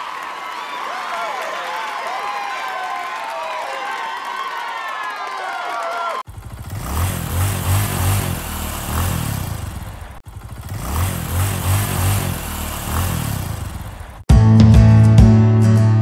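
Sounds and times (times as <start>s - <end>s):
motorboat engine running: 6.3s - 14.2s
acoustic guitar music: 14.3s - 16.0s.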